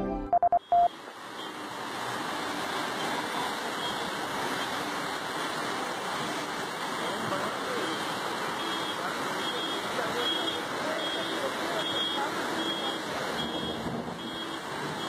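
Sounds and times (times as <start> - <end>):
short electronic beeps: 0.3 - 0.9
floodwater rushing: 0.9 - 15.0.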